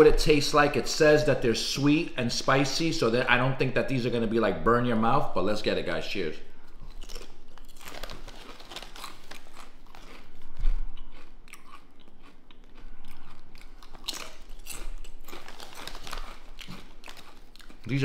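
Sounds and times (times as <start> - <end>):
potato chips crunching: 6.8 - 18.0.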